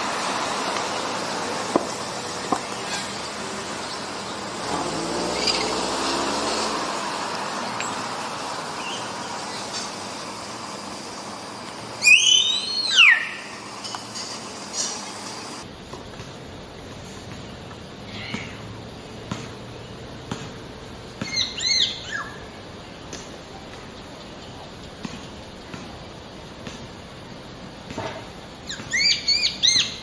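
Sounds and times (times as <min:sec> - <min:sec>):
background hiss: 0:00.0 - 0:30.0
myna whistle call: 0:12.0 - 0:13.5
faint bird chirps: 0:12.0 - 0:14.0, 0:21.2 - 0:25.8.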